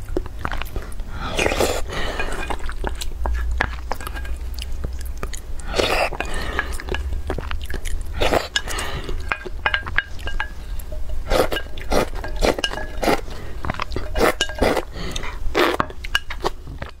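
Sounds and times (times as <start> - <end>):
wet chewing: 0.0 - 17.0
slurping broth: 0.3 - 4.9, 5.6 - 16.7
wooden spoon against glass: 1.4 - 5.4, 6.0 - 7.5, 8.5 - 14.9, 15.8 - 17.0.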